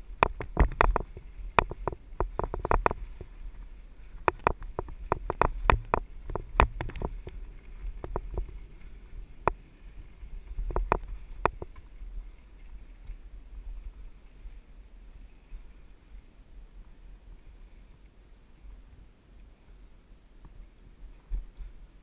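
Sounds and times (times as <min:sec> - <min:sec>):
mountain bike rattling and knocking: 0:00.0 - 0:03.3, 0:04.2 - 0:08.6, 0:10.5 - 0:11.9
steady low rumble: 0:00.0 - 0:22.0.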